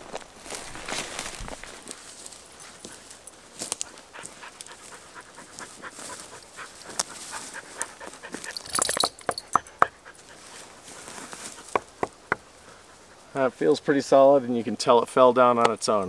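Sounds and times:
rustling through undergrowth: 0.0 - 14.5
dog panting: 2.6 - 13.4
knuckles knocking on log: 11.7 - 12.4.

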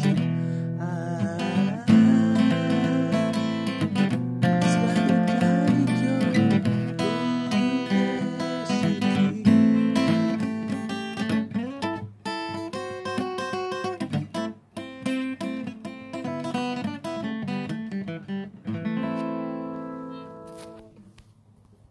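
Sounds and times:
man singing: 0.0 - 11.0
acoustic guitar strummed: 0.0 - 20.9.

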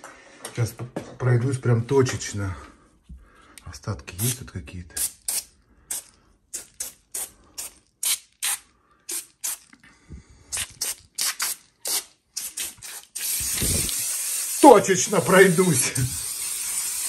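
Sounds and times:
aerosol can spraying short hisses: 10.5 - 17.0.

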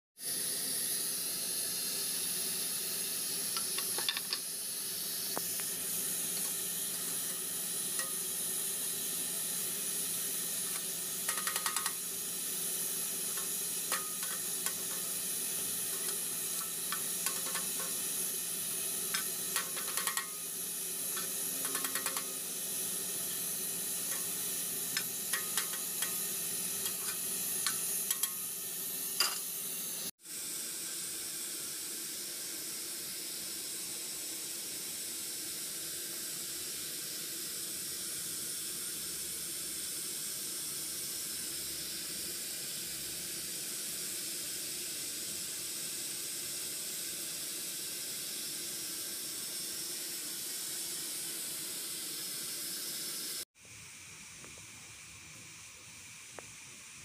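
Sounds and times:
deep-frying sizzle: 0.2 - 30.1.

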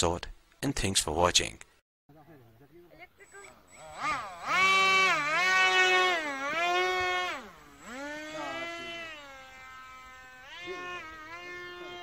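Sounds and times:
model plane motors whining: 3.2 - 12.0.

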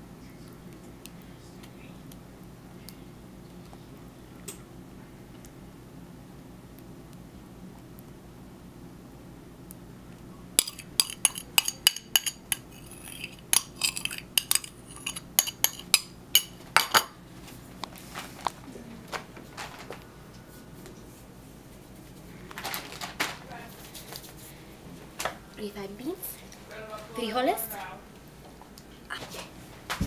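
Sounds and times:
metal spoon clinking on bowl: 10.6 - 17.1.

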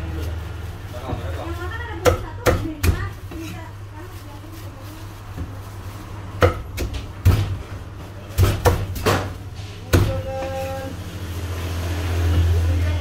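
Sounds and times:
cleaver chopping on wooden block: 8.4 - 9.3.

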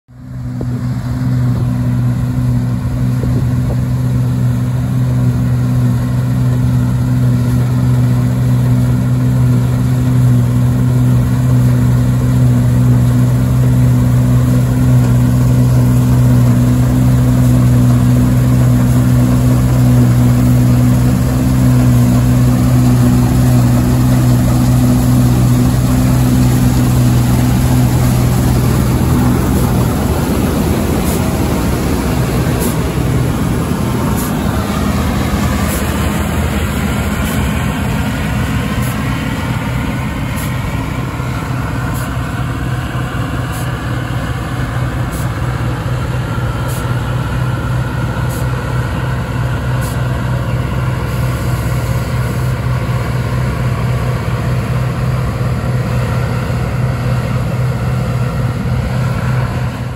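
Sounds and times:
combine harvester engine droning: 0.1 - 59.9.

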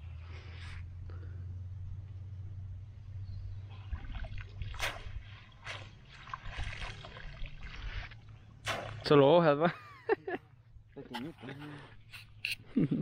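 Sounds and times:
water splashing and dripping: 3.7 - 9.4.

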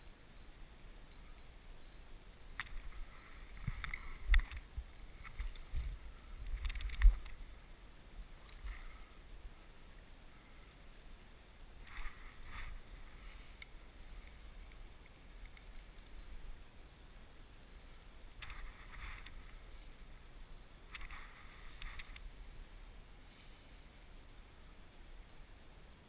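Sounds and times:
river rumble: 0.0 - 26.0
wind: 0.0 - 26.0.

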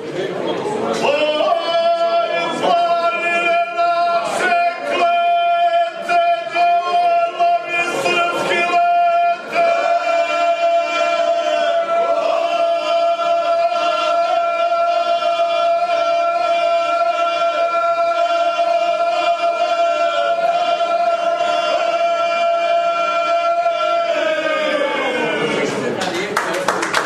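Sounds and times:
male group singing a cappella: 1.0 - 25.4.

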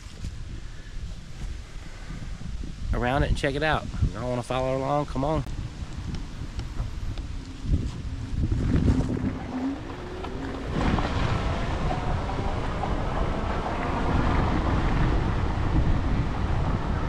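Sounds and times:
wind buffeting microphone: 0.0 - 17.0
bike tyres rolling over gravel: 5.9 - 15.4.

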